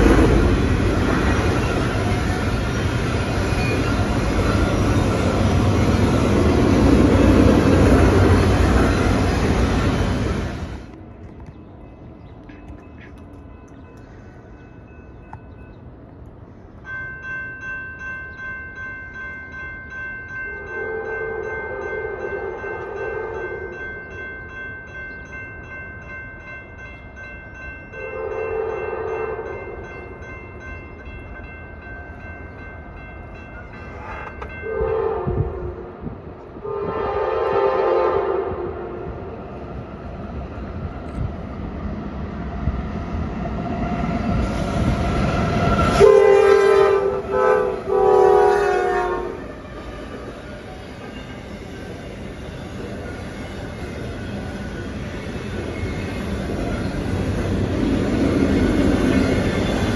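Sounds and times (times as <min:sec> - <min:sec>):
crossing warning bell ringing: 0:00.0 - 0:35.9, 0:45.1 - 0:59.9
low rumble of train: 0:00.0 - 0:59.9
train horn blasts: 0:20.6 - 0:23.8, 0:28.0 - 0:29.6, 0:34.6 - 0:39.2, 0:45.9 - 0:49.5.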